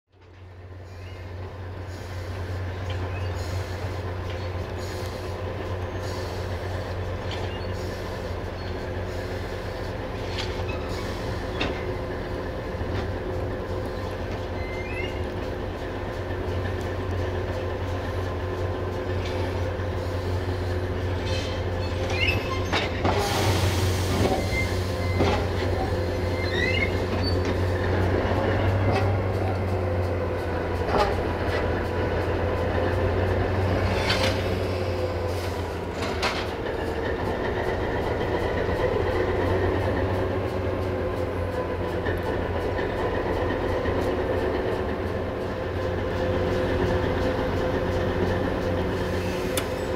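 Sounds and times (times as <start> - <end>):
diesel locomotive running: 0.1 - 49.9
wheel squeals: 2.8 - 5.0, 7.2 - 9.3, 10.2 - 12.1, 13.9 - 15.5, 21.1 - 27.8.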